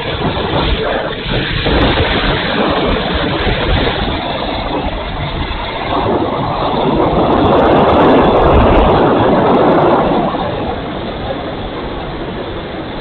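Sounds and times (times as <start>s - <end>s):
model plane propeller noise: 0.0s - 13.0s
wind rush: 0.0s - 13.0s.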